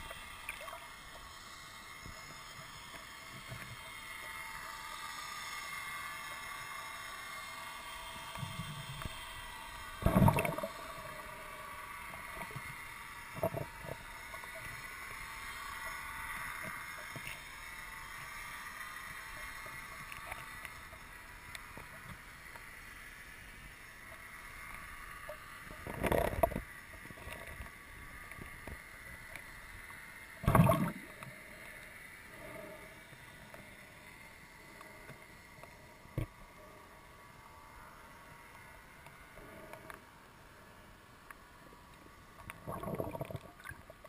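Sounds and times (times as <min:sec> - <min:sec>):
faint steady hiss: 0:00.0 - 0:44.0
thin steady whine: 0:00.0 - 0:44.0
rushes of water: 0:10.0 - 0:12.6, 0:30.4 - 0:31.2, 0:42.5 - 0:44.0.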